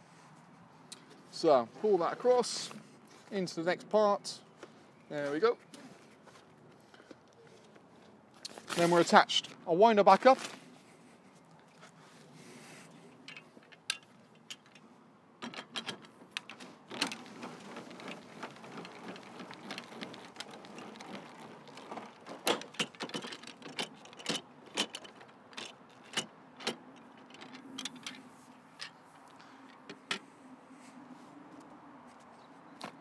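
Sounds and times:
awning crank clicking and rattling: 15.4 - 28.2.

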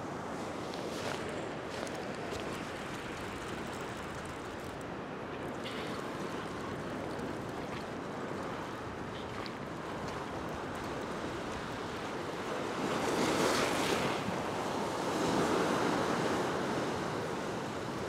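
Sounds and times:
waves washing over rocks: 5.6 - 18.0.

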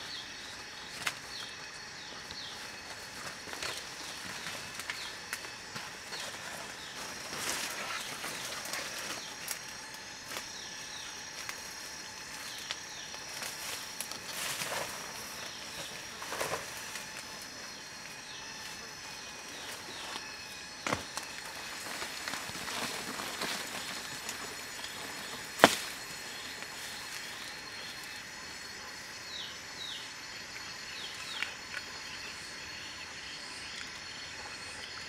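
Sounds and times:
high insect drone: 0.0 - 35.0
footsteps through undergrowth: 2.3 - 28.2.

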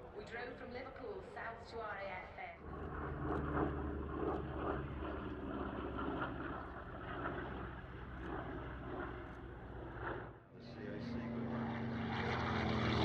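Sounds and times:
radial aircraft engine running: 2.6 - 13.0.

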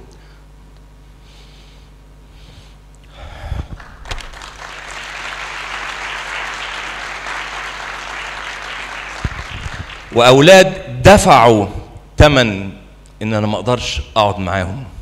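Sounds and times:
audience applause: 3.8 - 10.4.

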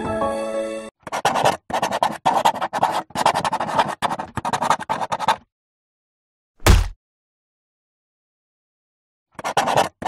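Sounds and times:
marker pen scratching: 1.0 - 5.5, 9.4 - 10.0.

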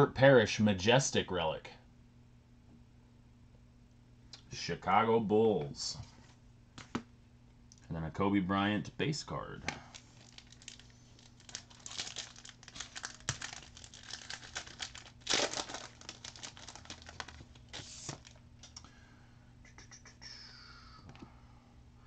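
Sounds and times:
foil wrapper tearing and crinkling: 9.9 - 18.4.

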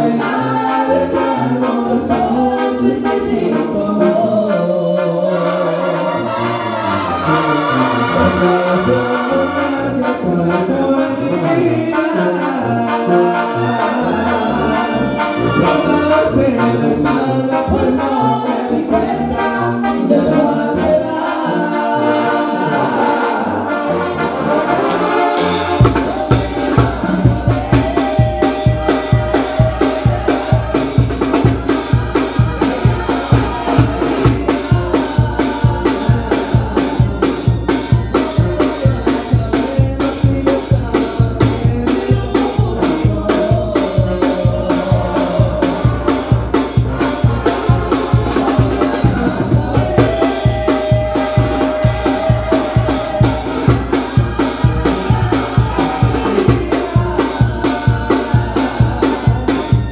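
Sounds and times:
brass section playing melody: 0.0 - 59.9
snare and bass drum beat: 25.0 - 59.9.

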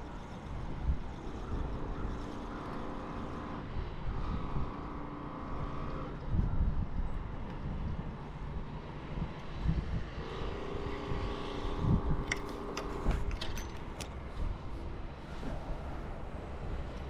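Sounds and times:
distant motor humming: 0.0 - 17.0.

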